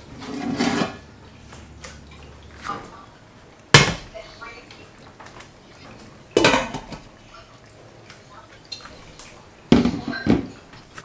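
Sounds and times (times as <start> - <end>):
kitchenware clattering: 0.0 - 1.1, 5.9 - 7.1, 8.7 - 11.0.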